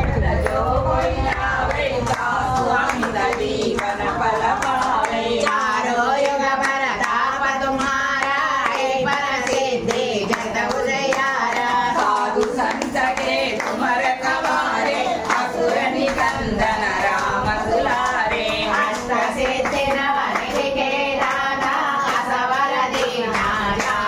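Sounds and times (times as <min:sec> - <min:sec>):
hand-clapping: 0:00.0 - 0:24.0
women singing a devotional chant: 0:00.0 - 0:24.0.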